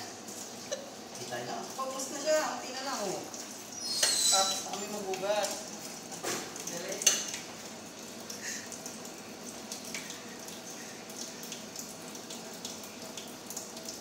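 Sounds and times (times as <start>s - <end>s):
tap water running into sink: 0.0s - 14.0s
dishes being scrubbed: 3.7s - 5.0s.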